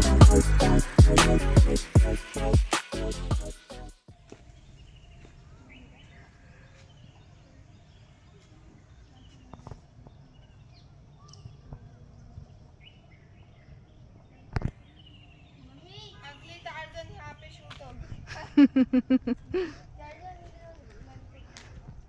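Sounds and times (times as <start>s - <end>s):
small birds chirping: 4.0s - 18.3s, 19.0s - 22.0s.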